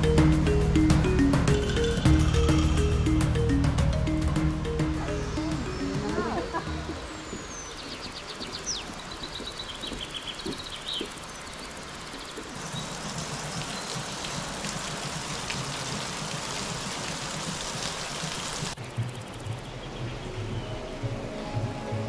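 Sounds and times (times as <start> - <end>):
birds chirping: 0.0 - 22.0
water splashing off roof: 12.5 - 18.8.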